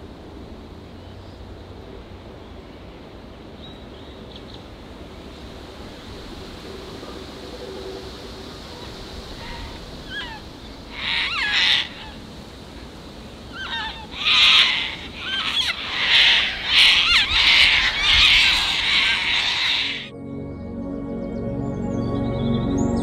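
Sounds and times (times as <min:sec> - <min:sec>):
cockatoos screeching: 0:08.7 - 0:20.1.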